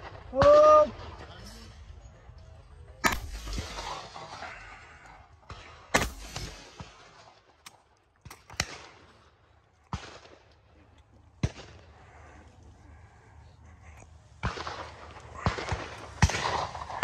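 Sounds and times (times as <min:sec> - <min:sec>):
shotgun shots echoing: 0:03.0 - 0:04.8, 0:05.4 - 0:09.3, 0:09.9 - 0:10.6, 0:11.4 - 0:12.4, 0:14.4 - 0:17.0.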